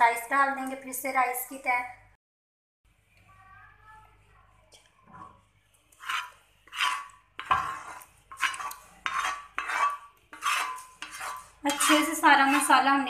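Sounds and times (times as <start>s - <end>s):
spoon scraping metal wok: 5.9s - 13.0s.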